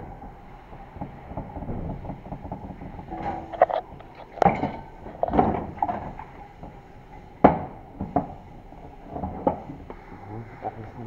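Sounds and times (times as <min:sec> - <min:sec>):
steel parts clinking and knocking: 0:01.8 - 0:08.4.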